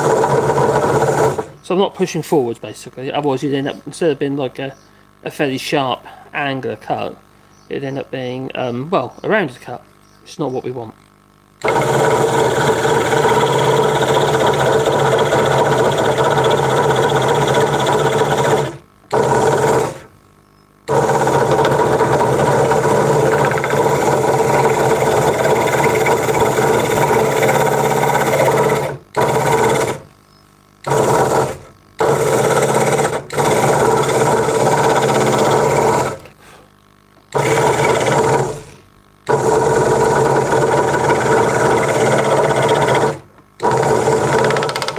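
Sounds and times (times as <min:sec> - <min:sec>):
scroll saw running: 0:00.0 - 0:01.6, 0:11.6 - 0:20.1, 0:20.9 - 0:30.1, 0:30.8 - 0:36.3, 0:37.3 - 0:44.9.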